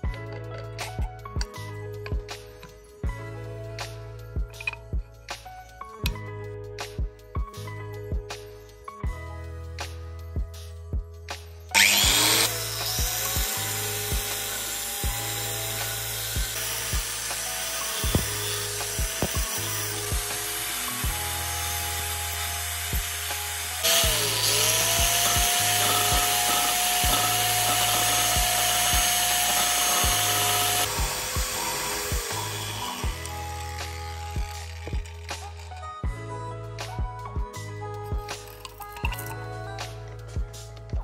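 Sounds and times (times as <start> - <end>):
background music with steady beat: 0.0 - 41.0
angle grinder motor whine: 11.7 - 35.8.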